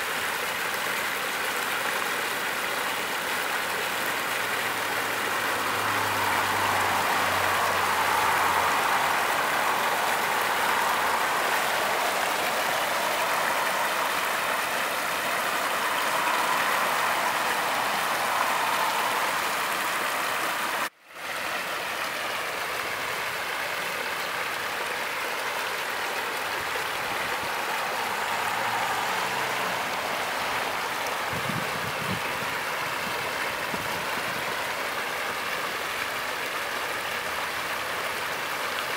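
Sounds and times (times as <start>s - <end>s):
water rushing over rocks: 0.0s - 38.9s.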